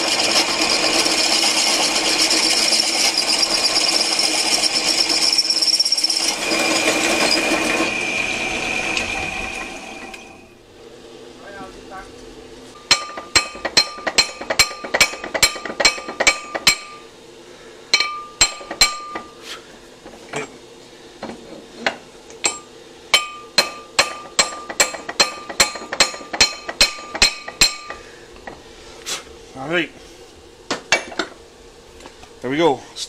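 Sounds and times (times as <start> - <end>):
metallic ringing clink: 18.0 - 19.2.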